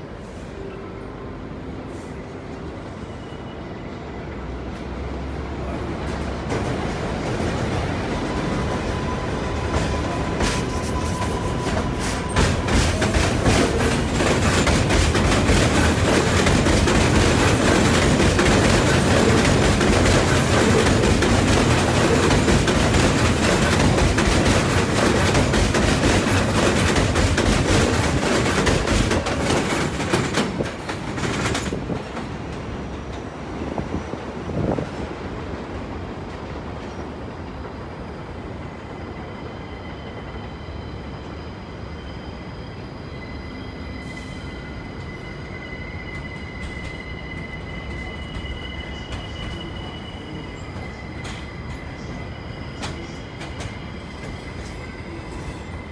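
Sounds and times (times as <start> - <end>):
rumble of train: 0.0 - 55.9
train wheels clacking on rails: 5.8 - 33.4, 46.0 - 55.9.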